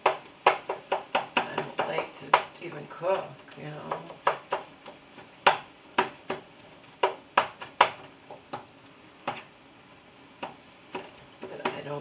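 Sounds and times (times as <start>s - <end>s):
spatula clacking on frying pan: 0.0s - 2.6s, 3.5s - 9.5s.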